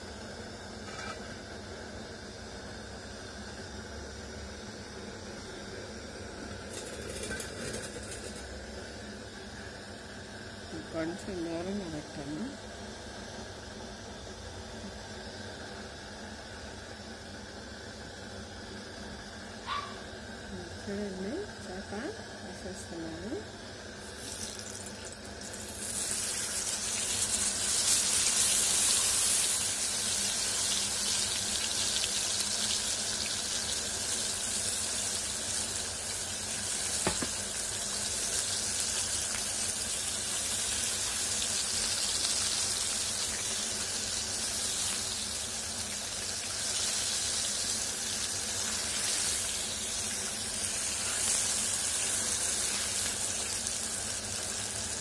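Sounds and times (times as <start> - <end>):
fish sizzling in hot oil: 0.0 - 9.1, 23.8 - 55.0.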